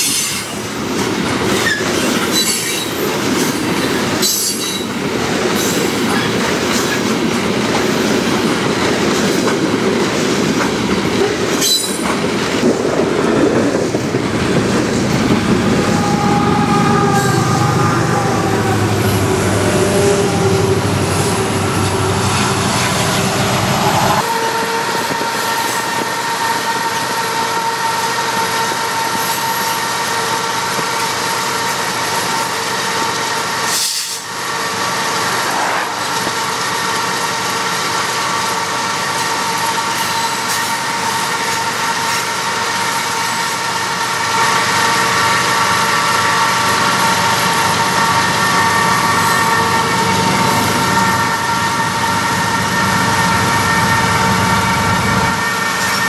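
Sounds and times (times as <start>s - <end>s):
locomotives droning: 12.5s - 29.2s.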